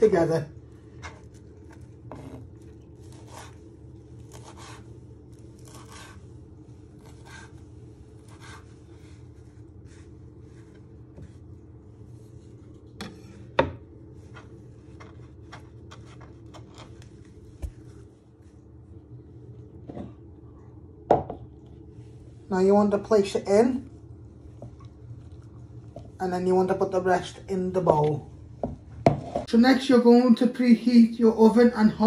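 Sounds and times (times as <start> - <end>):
steady low hum: 0.0 - 32.0
hand scraping herbs on wooden board: 6.8 - 11.5.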